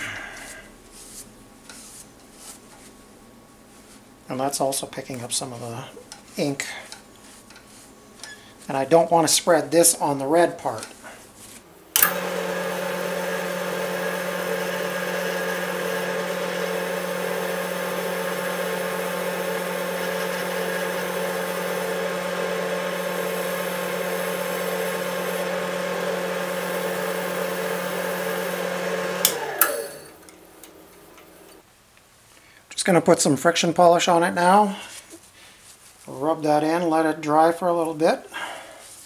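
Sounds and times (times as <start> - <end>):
lathe switch click: 12.0 - 12.4, 29.2 - 31.3
wood lathe motor hum and whine: 12.0 - 31.6.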